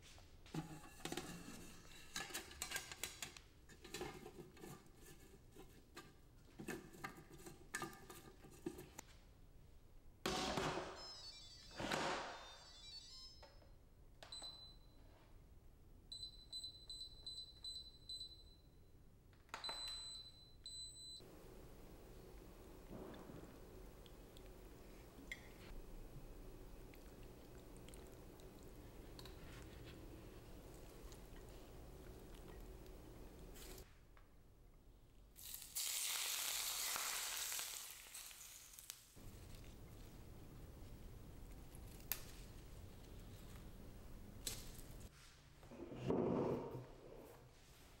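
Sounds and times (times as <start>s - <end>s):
appliance control panel beeps: 10.9s - 11.8s, 12.4s - 15.0s, 16.1s - 18.8s, 19.6s - 21.3s
hot oil sizzling: 35.4s - 39.2s.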